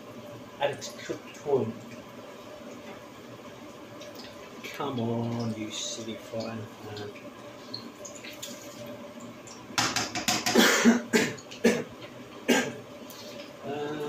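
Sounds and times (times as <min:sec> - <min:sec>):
fish sizzling in hot oil: 0:00.0 - 0:10.6
person coughing: 0:10.5 - 0:11.9, 0:12.5 - 0:12.8.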